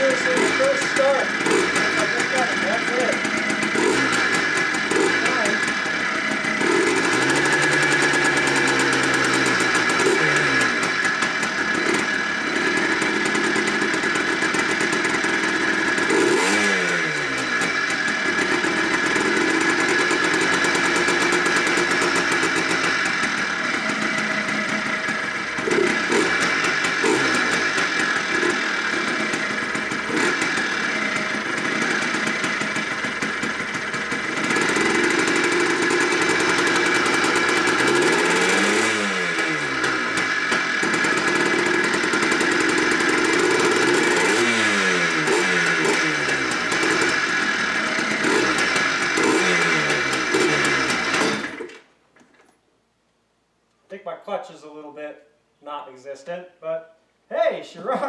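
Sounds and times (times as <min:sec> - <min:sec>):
two-stroke engine revving: 0:00.0 - 0:51.9.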